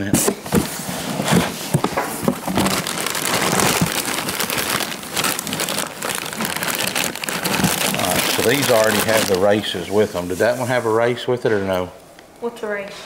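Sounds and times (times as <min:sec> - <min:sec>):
packaging crinkling: 0:00.5 - 0:10.1.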